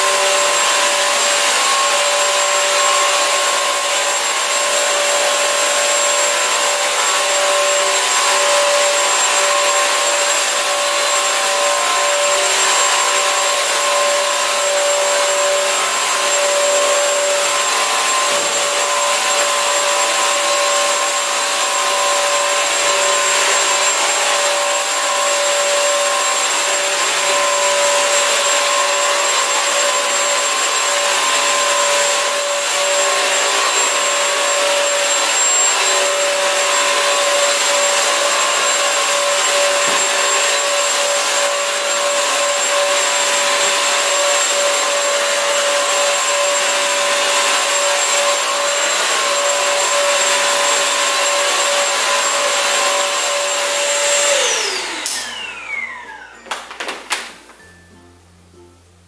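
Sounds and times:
vacuum mop motor whine: 0.0 - 57.9.

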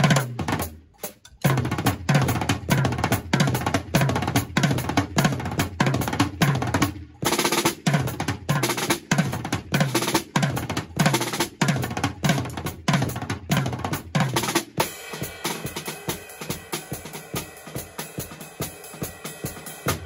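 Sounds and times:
drum kit hits: 7.9 - 20.0
cymbal wash: 14.8 - 20.0.

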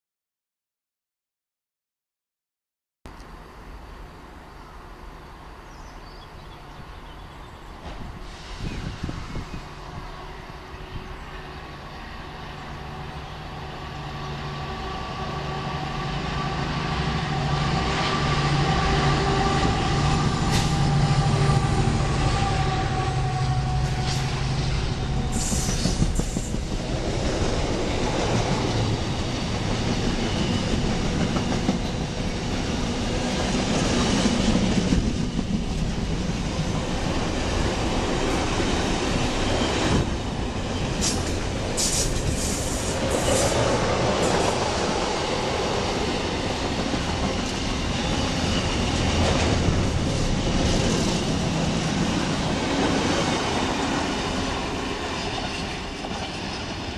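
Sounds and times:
diesel locomotive engine: 3.1 - 56.9
train wagons rumbling: 12.4 - 56.9.

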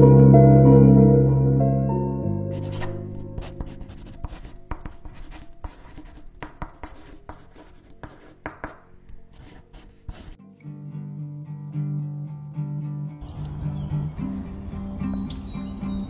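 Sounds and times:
pen scratching on paper: 2.5 - 10.4.

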